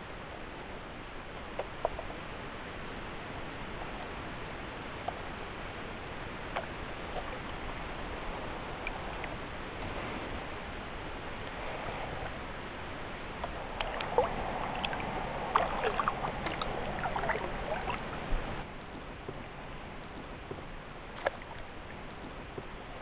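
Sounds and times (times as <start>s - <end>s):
steady hiss: 0.0s - 23.0s
water dripping off paddle: 13.4s - 18.5s
paddle splashing in water: 13.4s - 18.6s.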